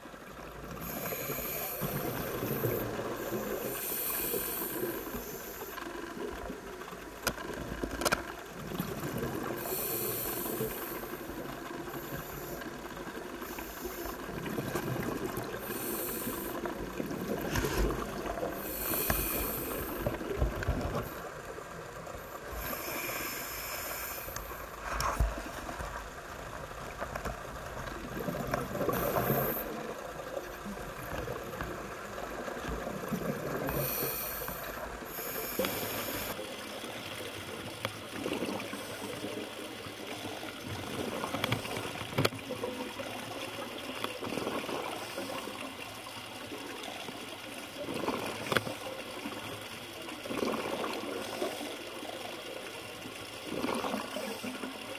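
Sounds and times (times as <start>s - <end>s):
scuba regulator inhale hiss: 0.7s - 5.8s, 9.6s - 12.8s, 13.4s - 14.2s, 15.5s - 16.9s, 17.6s - 21.2s, 22.4s - 25.2s, 28.8s - 29.8s, 33.6s - 36.4s.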